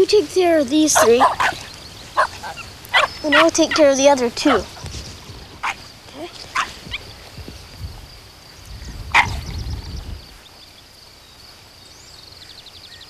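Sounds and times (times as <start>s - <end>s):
dogs barking: 0.9s - 4.9s, 5.6s - 5.9s, 6.5s - 7.0s, 9.1s - 9.4s.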